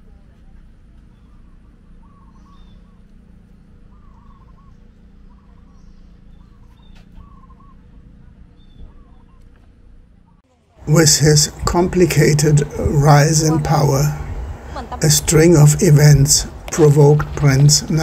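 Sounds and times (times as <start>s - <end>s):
low steady rumble: 0.0s - 18.0s
faint high bird chirps: 1.1s - 3.2s, 3.8s - 9.6s
bird wavering call: 1.2s - 3.1s, 3.9s - 8.0s.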